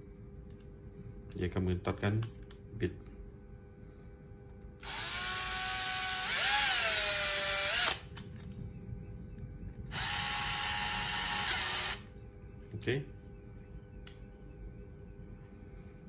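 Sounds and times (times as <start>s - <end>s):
cordless drill motor running: 4.8s - 8.1s, 9.9s - 12.1s.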